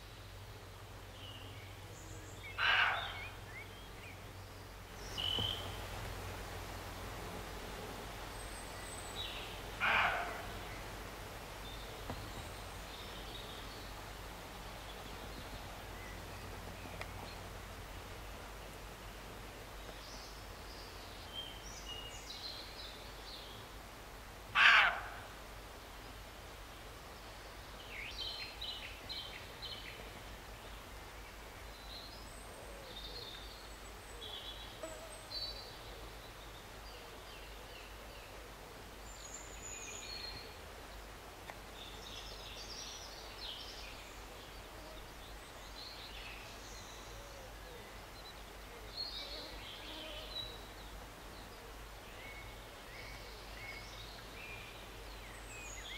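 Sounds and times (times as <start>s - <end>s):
small birds calling: 1.2s - 4.2s, 4.9s - 5.8s, 8.3s - 10.9s
deer barking: 2.6s - 3.2s, 9.8s - 10.5s, 24.6s - 25.2s.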